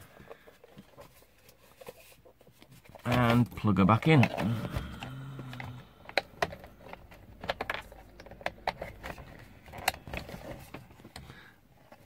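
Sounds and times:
hard plastic clicks and knocks: 0:04.0 - 0:11.4.

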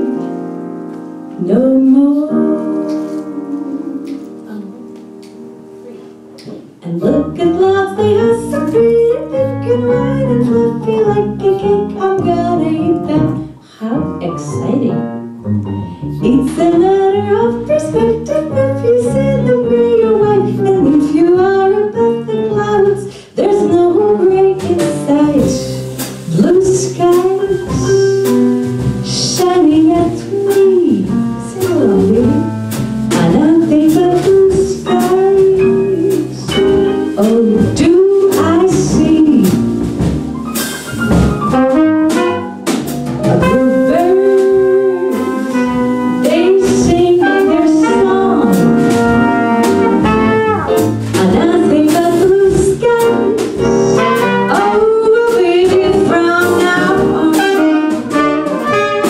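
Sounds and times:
woman singing jazz: 0:00.0 - 0:00.5, 0:01.2 - 0:15.2, 0:16.2 - 0:59.0
drums: 0:00.0 - 0:59.0
piano: 0:00.0 - 0:59.0
upright bass: 0:05.8 - 0:59.0
trumpet: 0:41.2 - 0:51.0, 0:53.7 - 0:55.2, 0:56.0 - 0:59.0
tenor saxophone: 0:41.5 - 0:51.0, 0:56.6 - 0:59.0.

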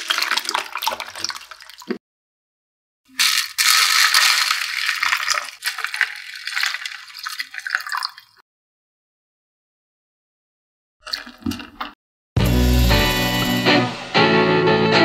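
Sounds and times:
water splashing and trickling: 0:00.0 - 0:02.0, 0:03.1 - 0:08.4, 0:11.0 - 0:12.0.

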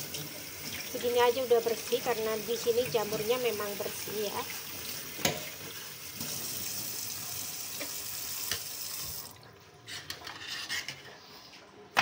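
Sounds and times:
tap water running into sink: 0:00.0 - 0:09.5.

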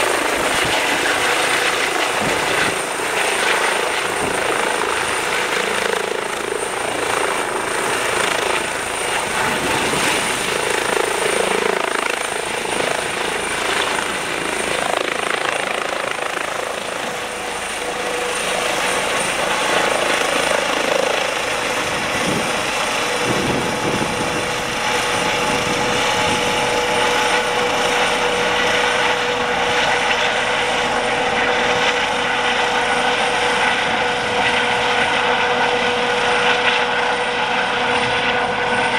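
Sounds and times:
helicopter rotor and engine: 0:00.0 - 0:38.9
high turbine whine: 0:00.0 - 0:38.9.

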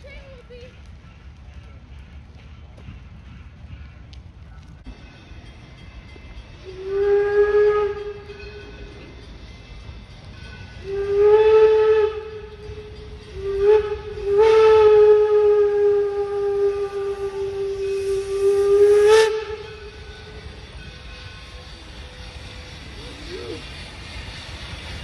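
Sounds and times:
steam whistle blasts: 0:06.6 - 0:08.9, 0:10.8 - 0:23.7.

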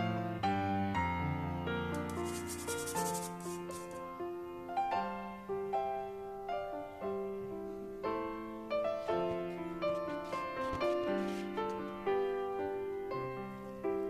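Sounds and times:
gentle piano music: 0:00.0 - 0:14.0
flour pushed through metal sieve: 0:02.0 - 0:04.0.

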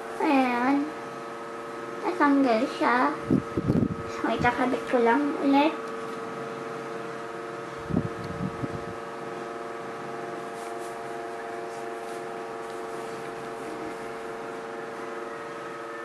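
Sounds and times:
electrical appliance hum: 0:00.0 - 0:16.0.

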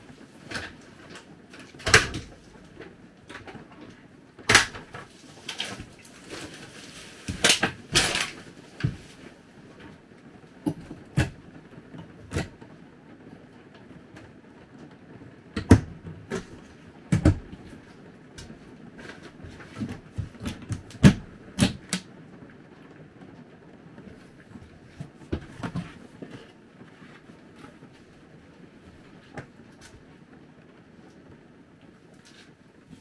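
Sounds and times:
household items clattering: 0:00.0 - 0:09.9, 0:15.6 - 0:21.9.

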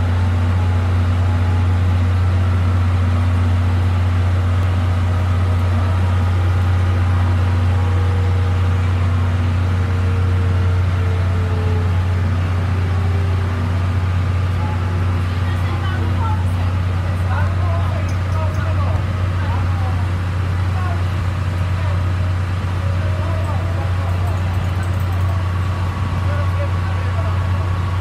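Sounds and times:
train machinery humming: 0:00.0 - 0:28.0.

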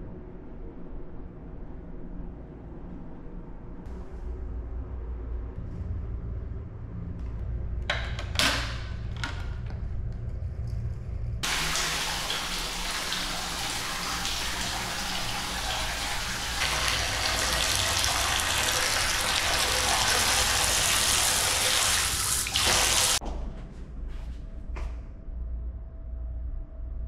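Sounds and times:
water running into a sink: 0:11.4 - 0:23.2.

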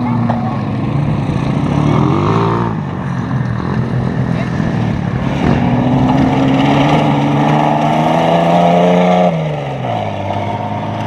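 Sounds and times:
race car engine revving: 0:00.0 - 0:11.0.

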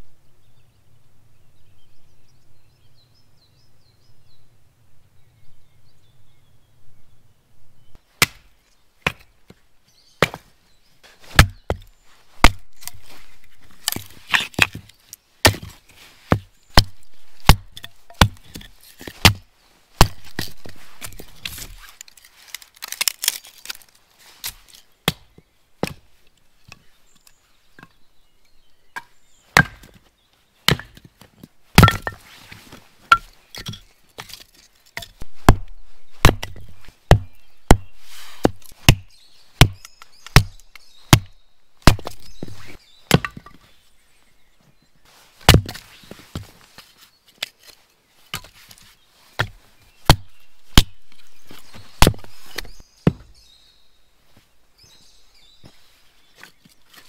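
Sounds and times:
hatchet chopping wood: 0:08.2 - 0:09.3, 0:10.2 - 0:10.5, 0:11.3 - 0:13.0, 0:13.8 - 0:21.8, 0:25.0 - 0:26.0, 0:29.0 - 0:30.0, 0:30.7 - 0:31.1, 0:31.7 - 0:32.2, 0:33.1 - 0:34.4, 0:35.0 - 0:43.6, 0:45.5 - 0:45.8, 0:49.4 - 0:53.3.

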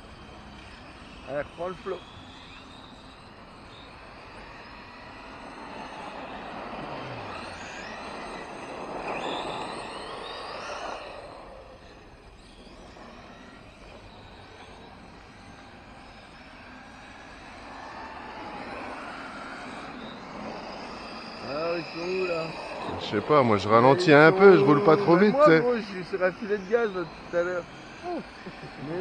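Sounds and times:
electric motor whine: 0:00.0 - 0:29.0
tyres on dirt: 0:00.0 - 0:29.0.

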